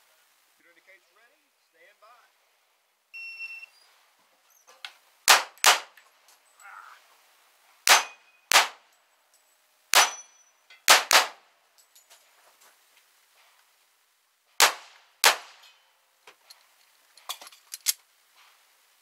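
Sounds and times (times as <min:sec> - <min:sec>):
pistol shots: 0:05.3 - 0:06.0, 0:07.9 - 0:08.8, 0:09.9 - 0:10.3, 0:10.9 - 0:11.4, 0:14.6 - 0:15.7.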